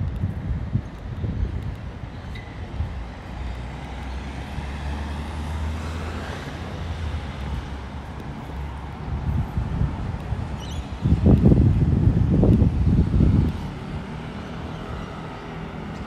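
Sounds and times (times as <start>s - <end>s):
vehicle road noise: 0.0s - 16.0s.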